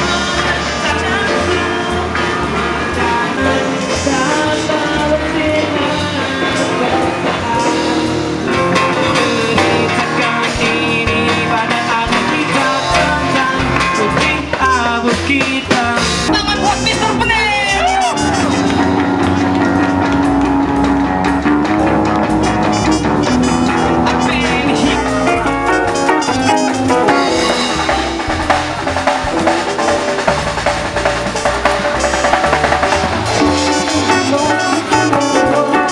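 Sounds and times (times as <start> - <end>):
person singing: 0.0 - 18.6, 24.2 - 30.1, 32.7 - 35.9
drum kit: 0.0 - 35.9
guitars: 0.0 - 35.9.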